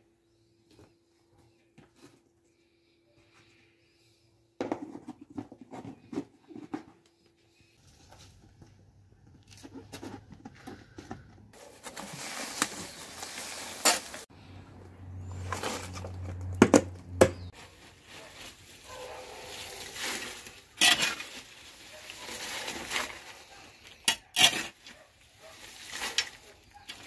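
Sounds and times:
shovel scraping and rustling: 0:11.6 - 0:14.3, 0:15.2 - 0:16.4, 0:17.4 - 0:27.0.

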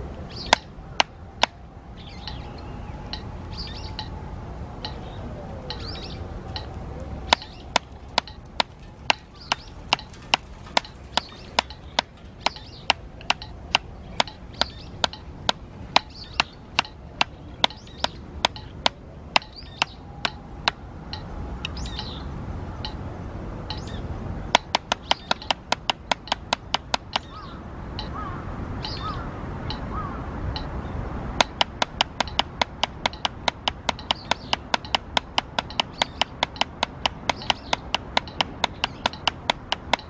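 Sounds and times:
drumsticks on practice pad: 0:00.4 - 0:02.5, 0:05.7 - 0:22.2, 0:23.6 - 0:28.2, 0:31.4 - 0:40.0.

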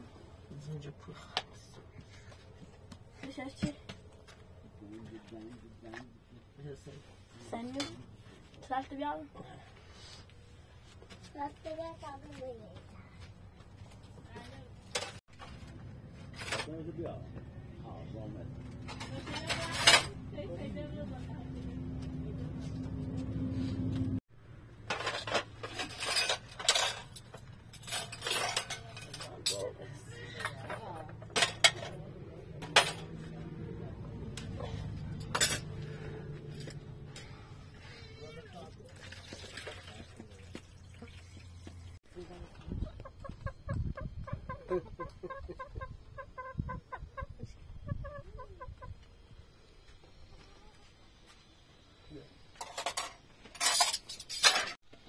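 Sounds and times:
dishes and cutlery clattering: 0:18.8 - 0:20.2, 0:24.9 - 0:32.0, 0:35.1 - 0:35.8, 0:52.6 - 0:54.8
chickens clucking: 0:42.6 - 0:49.1.

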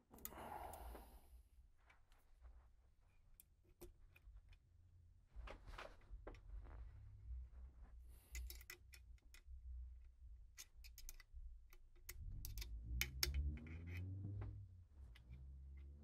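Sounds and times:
metal tool clicks and taps: 0:08.3 - 0:09.5, 0:10.5 - 0:14.1.

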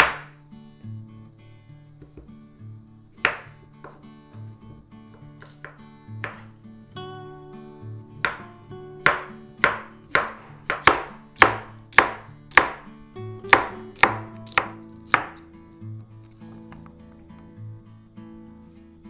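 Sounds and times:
knife chopping on wooden board: 0:00.0 - 0:00.3, 0:03.3 - 0:04.0, 0:05.4 - 0:06.5, 0:08.2 - 0:08.4, 0:09.0 - 0:12.9, 0:13.5 - 0:15.4
soft acoustic guitar music: 0:00.0 - 0:19.0.

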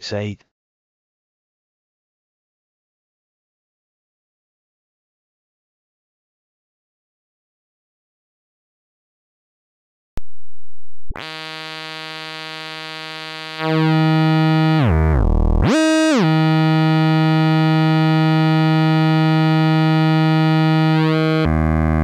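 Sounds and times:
low synthesizer tone: 0:10.2 - 0:22.0.

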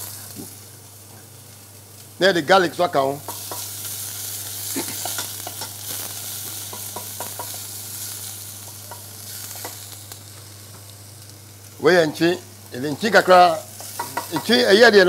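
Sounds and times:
onion sizzling in saucepan: 0:00.0 - 0:15.0
utensil scraping and tapping pan: 0:13.8 - 0:14.6.

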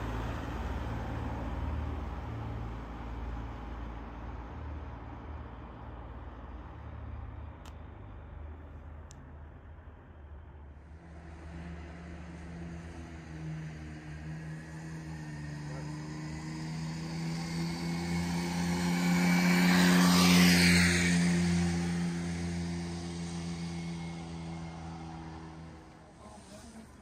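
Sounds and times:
passing engine hum: 0:00.0 - 0:27.0.

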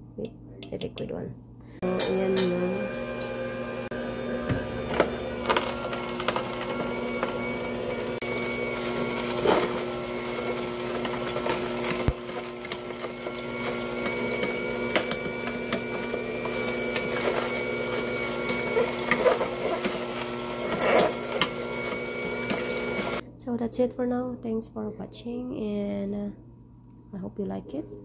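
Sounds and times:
juicer motor humming: 0:01.8 - 0:23.2
produce cracking in juicer: 0:01.9 - 0:23.2.

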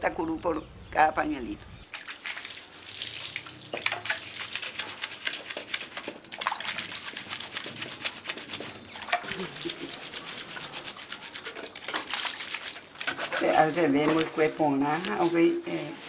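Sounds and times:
liquid splashing and dripping: 0:01.9 - 0:13.2
wet hands dabbing and rubbing: 0:01.9 - 0:16.0.

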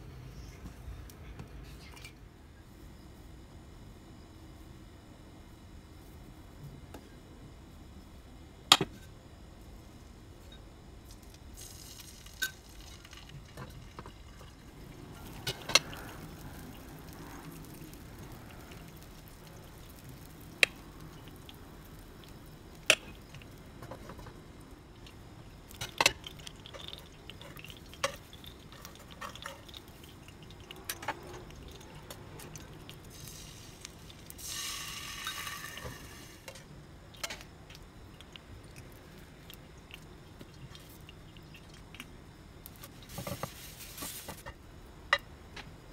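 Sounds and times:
hiss: 0:33.1 - 0:36.6
utensils clinking on pan and glass: 0:35.0 - 0:36.0.

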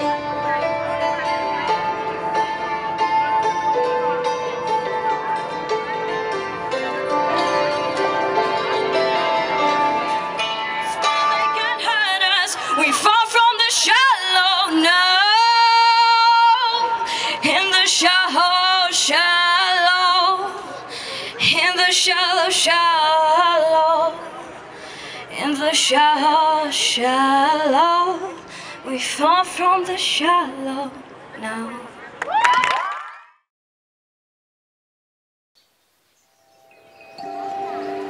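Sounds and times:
woman singing into microphone: 0:11.4 - 0:24.4, 0:25.2 - 0:32.0.

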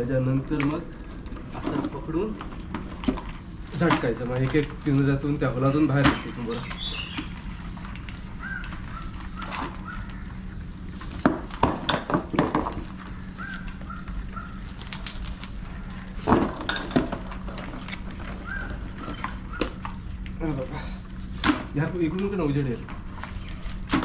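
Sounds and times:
crabs knocking and clattering: 0:00.4 - 0:20.4.

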